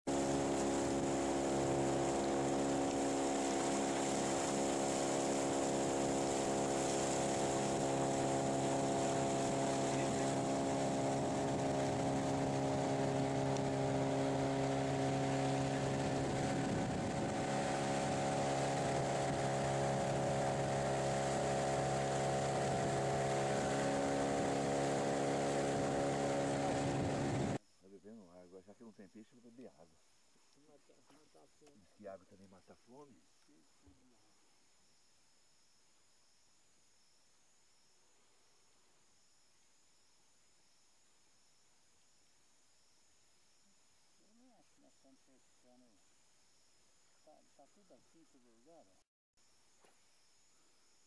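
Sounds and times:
boat motor running: 0.1s - 27.6s.

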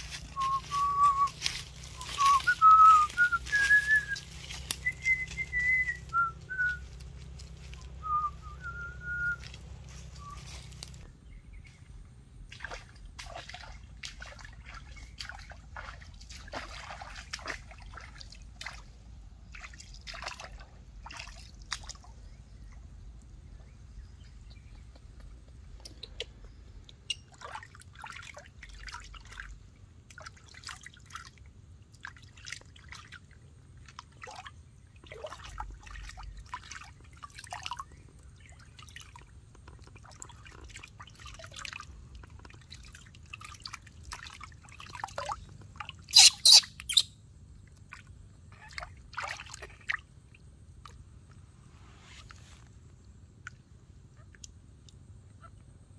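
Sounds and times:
shallow water splashing: 12.4s - 24.9s, 26.5s - 46.6s, 47.6s - 53.7s.

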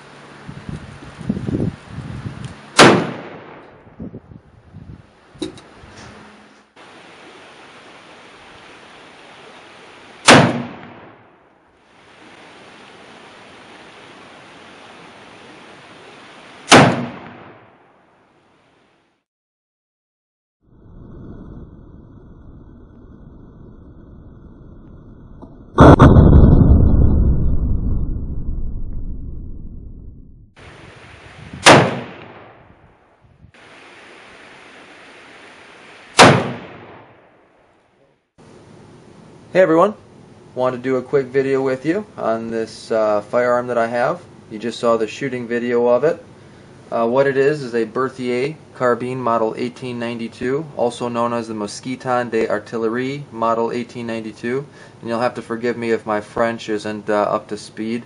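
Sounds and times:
rifle shots: 2.8s - 3.8s, 10.2s - 11.4s, 16.7s - 17.9s, 31.6s - 32.7s, 36.2s - 37.4s
steady hiss: 5.2s - 11.2s, 11.8s - 17.5s, 30.6s - 32.4s, 33.5s - 37.0s.

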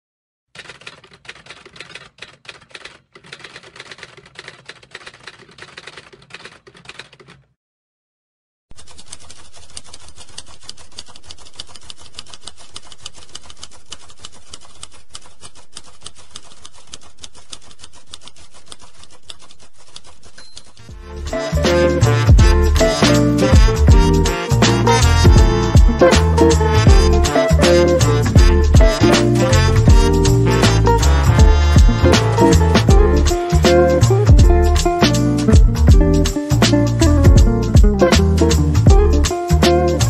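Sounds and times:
typewriter keys clacking: 0.6s - 7.5s, 8.7s - 21.0s.

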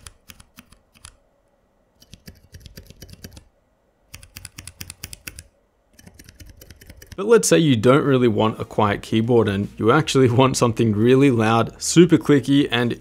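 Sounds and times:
keyboard switches tapping: 4.1s - 7.2s.

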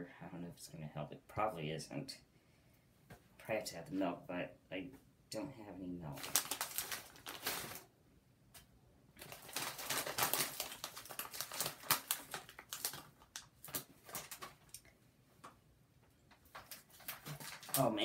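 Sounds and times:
chips rattling in bag: 6.2s - 7.8s, 9.2s - 14.8s, 16.5s - 17.9s
snack bag crackling: 6.2s - 7.9s, 9.2s - 15.0s, 16.4s - 17.9s.

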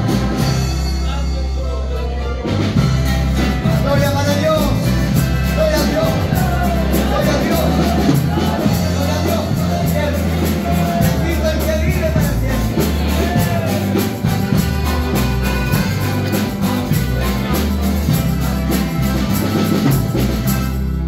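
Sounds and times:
bass line: 0.0s - 21.0s
guitars: 0.0s - 21.0s
steady beat: 2.7s - 21.0s
choir singing hymns: 5.1s - 11.8s.

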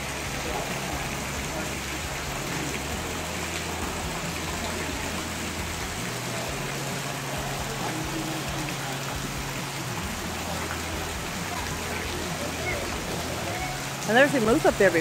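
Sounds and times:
waterfall splashing into pond: 0.0s - 15.0s.

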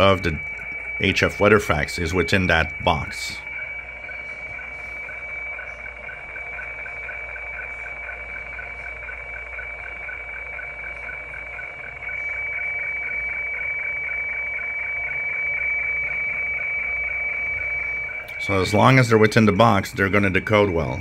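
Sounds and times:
radio fax tones: 0.0s - 12.4s.

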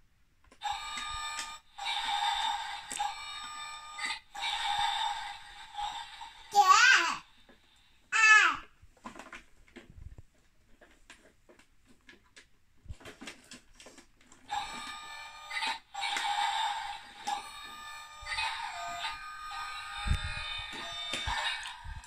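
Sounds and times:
toy truck electronic beeping: 0.6s - 5.2s, 14.5s - 22.0s.

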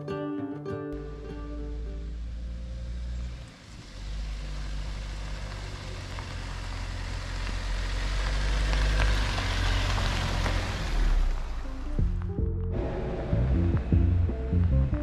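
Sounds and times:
car engine rumble: 1.0s - 15.0s
tyres crunching on gravel: 2.5s - 12.4s.

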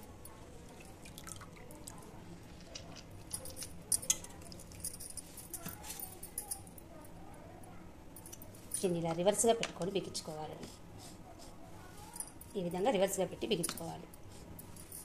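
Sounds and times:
wet squishing and dripping: 0.7s - 2.0s
light clicks and clinks: 1.6s - 6.9s, 8.2s - 9.9s.

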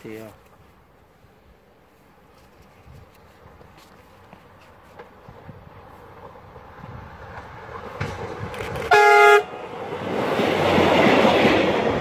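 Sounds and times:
train wheel and rail noise: 0.0s - 12.0s
train horn blast: 8.9s - 9.6s.

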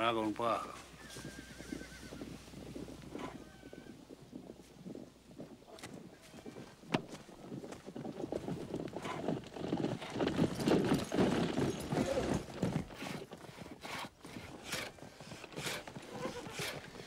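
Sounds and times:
horse hooves clip-clopping: 0.0s - 17.0s
horse whinny: 1.0s - 2.3s, 3.1s - 4.0s, 15.8s - 16.9s.

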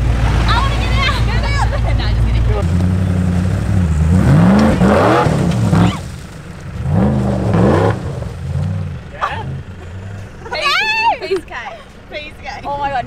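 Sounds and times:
engine revving: 0.0s - 10.5s.

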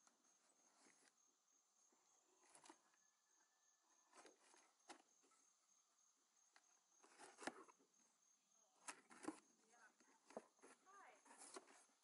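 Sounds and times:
pulsing high insect chirp: 0.0s - 12.0s
cardboard box scraping and rustling: 7.0s - 7.8s, 10.3s - 12.0s.

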